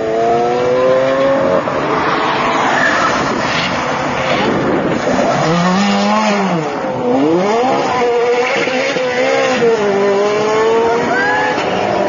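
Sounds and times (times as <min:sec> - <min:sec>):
sports car engines revving: 0:00.0 - 0:12.0.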